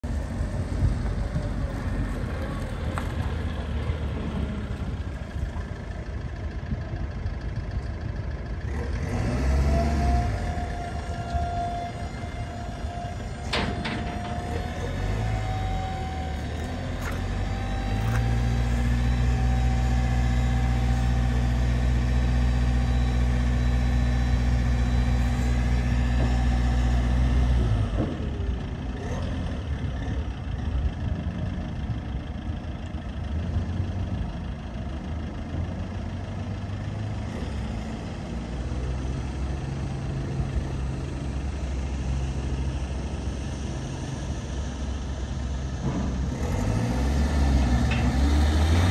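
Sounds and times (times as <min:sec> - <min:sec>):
diesel truck engine idling: 0:00.0 - 0:48.9
hydraulic whine: 0:09.5 - 0:28.2.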